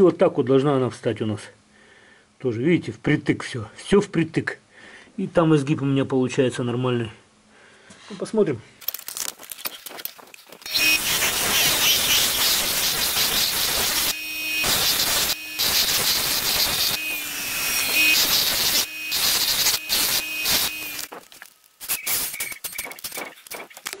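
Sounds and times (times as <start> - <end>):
bench grinder grinding metal: 10.6 - 24.0.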